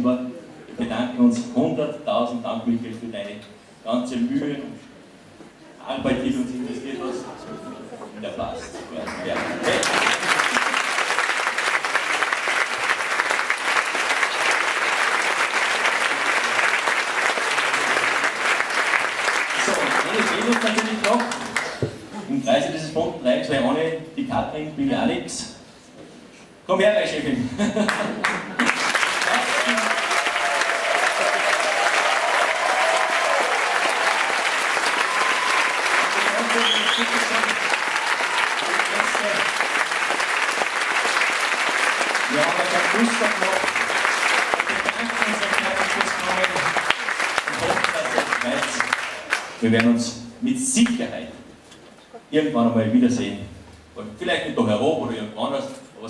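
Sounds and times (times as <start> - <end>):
audience applause: 9.0 - 21.9, 27.9 - 49.6
choir clapping along: 9.1 - 21.8, 27.9 - 49.9.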